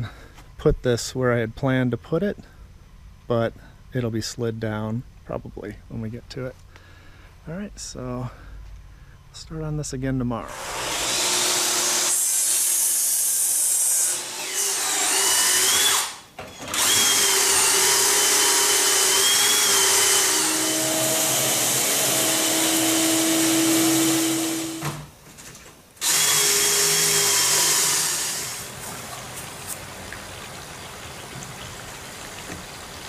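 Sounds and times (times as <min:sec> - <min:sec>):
cordless drill boring wood: 0:10.5 - 0:24.9, 0:26.0 - 0:28.7
shop vacuum running: 0:14.1 - 0:25.1.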